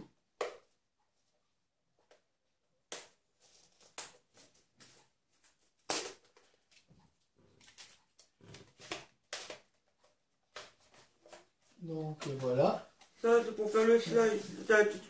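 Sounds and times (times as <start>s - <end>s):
soft plastic rustling: 9.6s - 15.0s.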